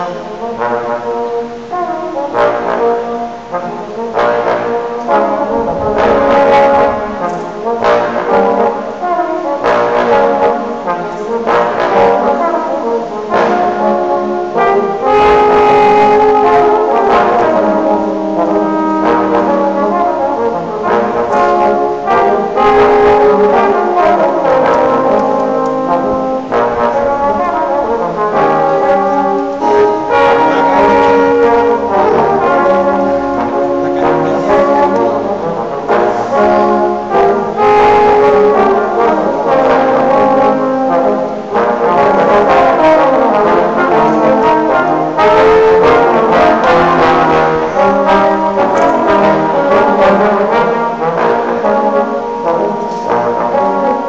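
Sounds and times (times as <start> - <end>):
brass ensemble playing blues: 0.0 - 54.0.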